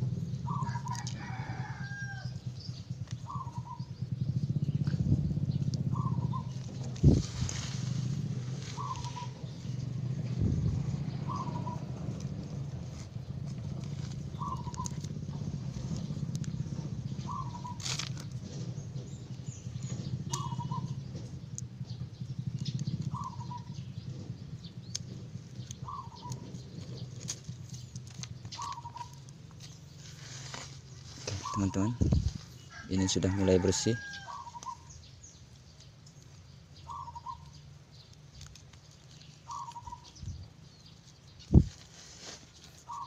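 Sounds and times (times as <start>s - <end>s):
bird chirping: 0.0s - 1.1s, 1.7s - 41.9s, 42.6s - 43.0s
steady low drone: 0.0s - 1.2s, 2.2s - 28.2s.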